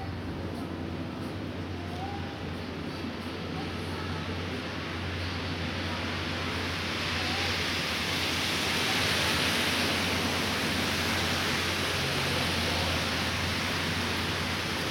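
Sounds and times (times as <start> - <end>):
tyres hissing through wet snow: 3.0 - 14.9.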